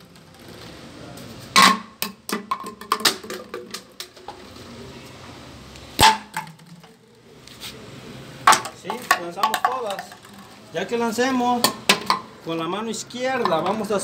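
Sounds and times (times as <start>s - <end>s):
plastic bottles clattering on concrete: 0.0s - 4.6s, 6.0s - 7.2s, 8.4s - 12.4s, 13.2s - 14.0s.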